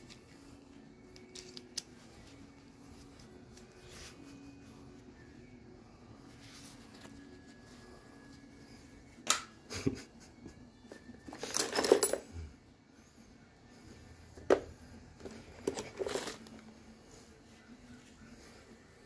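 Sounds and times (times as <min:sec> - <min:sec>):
hand tools clinking in bag: 0:11.3 - 0:12.3, 0:15.3 - 0:16.6.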